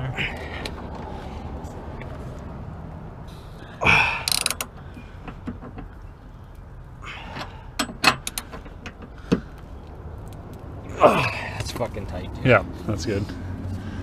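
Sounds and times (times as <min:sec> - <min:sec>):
hand ratchet clicking: 0:04.2 - 0:04.9.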